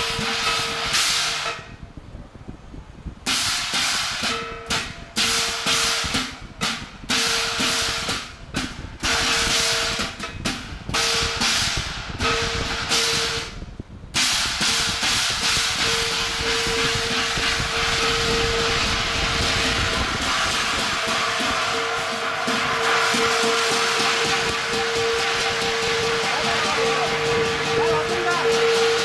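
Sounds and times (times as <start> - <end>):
hand cymbals crashing: 0.0 - 1.8, 3.3 - 29.0
gongs ringing: 15.4 - 29.0.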